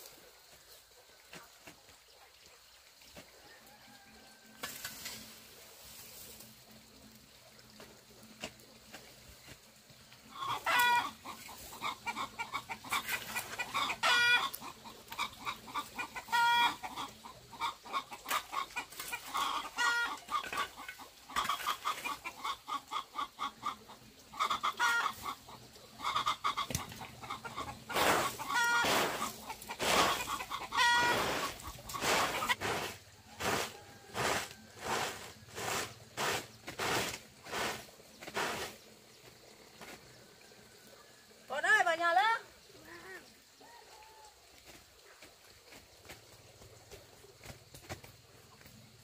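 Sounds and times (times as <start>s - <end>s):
broom sweeping over dirt: 4.6s - 6.6s, 27.6s - 40.1s
chickens clucking: 9.4s - 41.7s.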